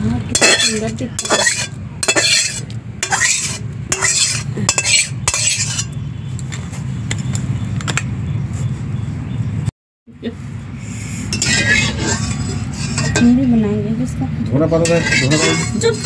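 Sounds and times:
metal spoon scraping cookware: 0.3s - 6.0s, 11.2s - 13.6s, 14.6s - 16.0s.

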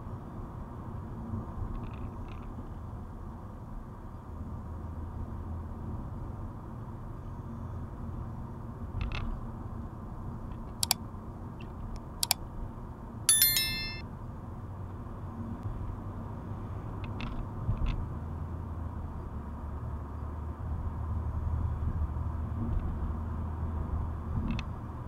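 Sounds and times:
notification bell ding: 13.3s - 14.0s.

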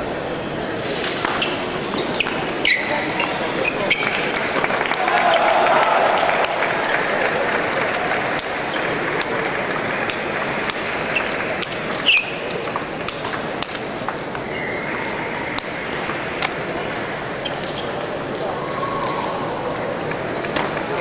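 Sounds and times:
murmur of voices: 0.0s - 21.0s
table tennis balls clicking: 6.4s - 18.4s.

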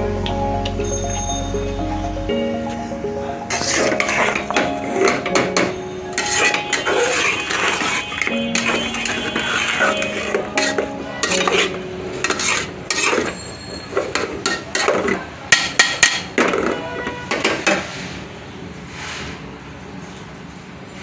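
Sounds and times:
metal spoon scraping a metal pot: 3.5s - 16.8s.

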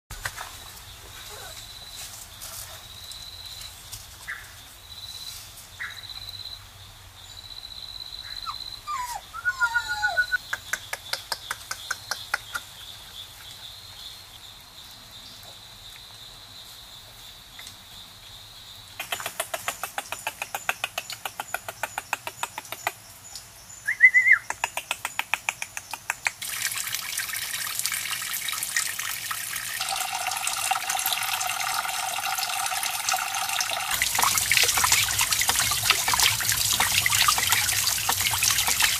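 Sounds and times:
birds chirping: 8.1s - 14.5s
water trickling into a pool: 25.6s - 38.9s.

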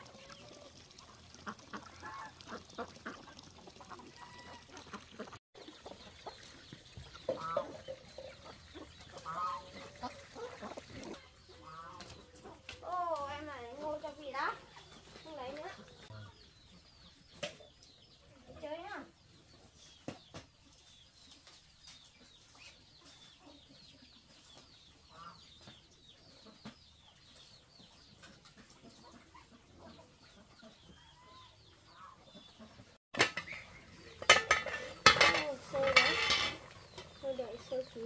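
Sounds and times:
chickens clucking and peeping: 0.0s - 38.0s
clattering and knocking: 33.2s - 37.1s.

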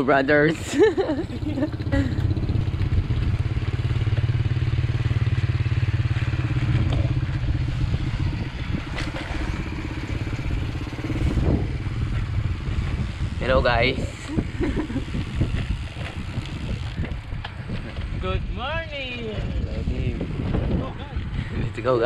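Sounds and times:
motorcycle engine putter: 6.4s - 7.6s.

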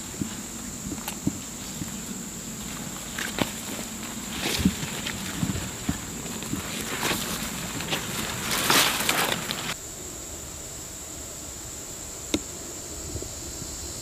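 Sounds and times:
leaves rustling and crackling: 0.0s - 9.9s
steady hiss: 0.0s - 14.0s.

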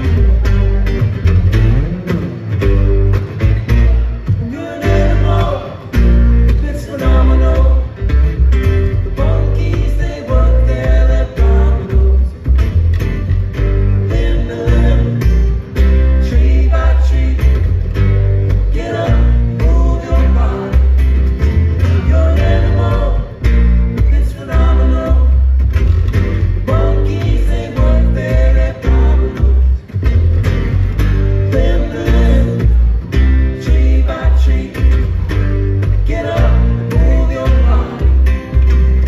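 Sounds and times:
acoustic guitars picked and strummed: 0.0s - 39.0s
plucked double bass: 0.0s - 39.0s.

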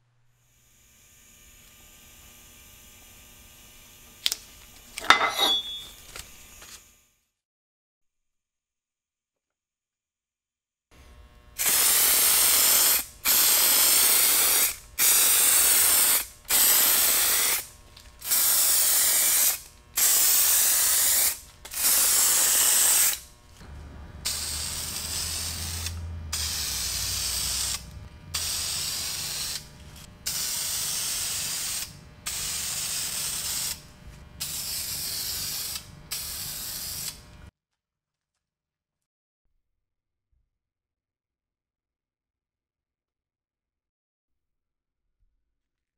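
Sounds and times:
spray paint can hissing: 11.6s - 23.3s, 24.2s - 37.2s.

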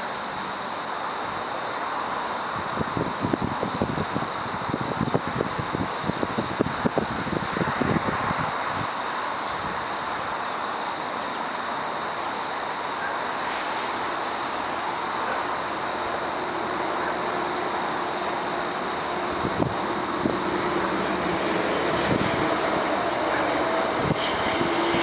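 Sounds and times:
diesel freight train rumbling: 0.0s - 25.0s.

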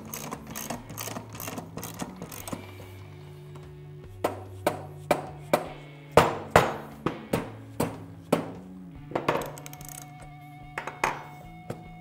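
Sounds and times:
mallet tapping metal crankcase: 0.0s - 2.8s, 9.3s - 10.2s.

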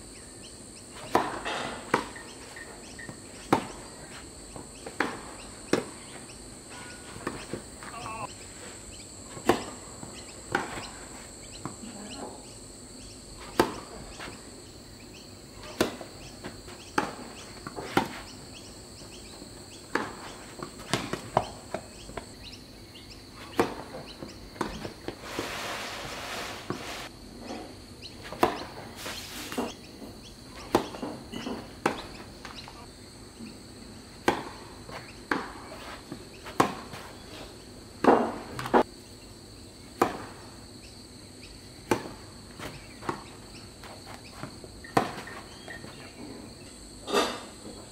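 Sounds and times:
high insect buzz: 0.0s - 27.2s, 28.0s - 47.6s
tennis racket hitting ball: 9.3s - 11.0s, 13.4s - 14.4s, 19.9s - 22.2s, 28.3s - 28.7s, 34.2s - 37.2s.

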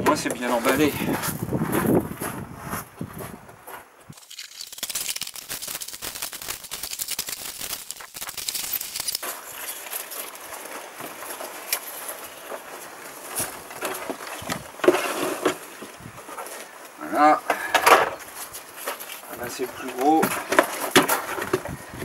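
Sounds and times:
packing chips and cardboard rustling: 4.2s - 16.9s, 18.2s - 21.8s.

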